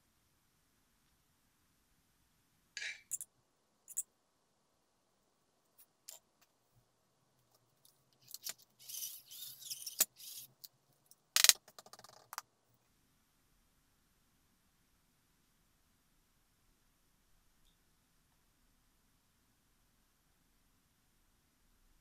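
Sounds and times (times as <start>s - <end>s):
small parts and tools clinking: 2.8s - 3.3s.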